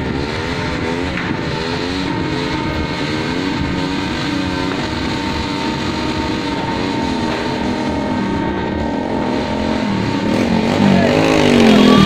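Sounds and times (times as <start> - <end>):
engines revving: 0.0 - 12.0
steady high tone: 0.0 - 12.0.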